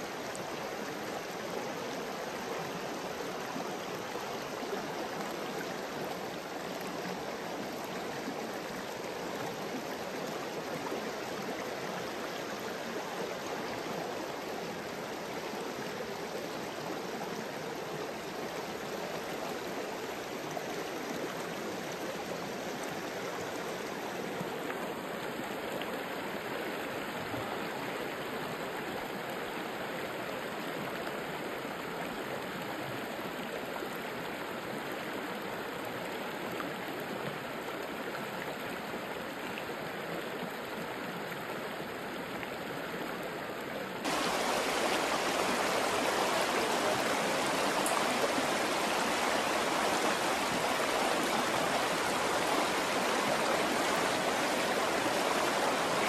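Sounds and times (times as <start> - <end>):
river rushing over stones: 44.0 - 56.0.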